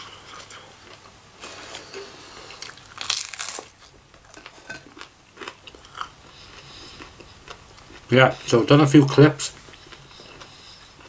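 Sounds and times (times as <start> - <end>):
cutlery scraping on a plate: 4.4 - 4.9
chewing: 9.6 - 11.0.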